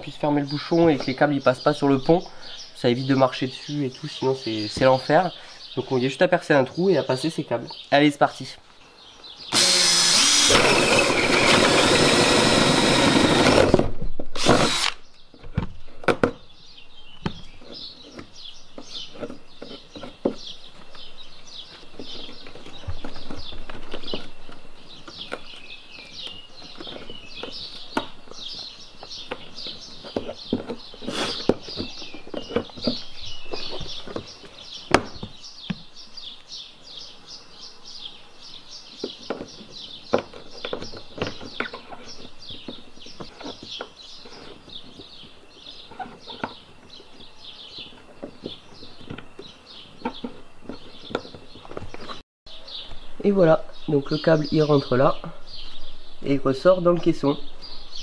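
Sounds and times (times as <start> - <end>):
cordless drill boring: 9.5 - 13.8, 14.4 - 15.0.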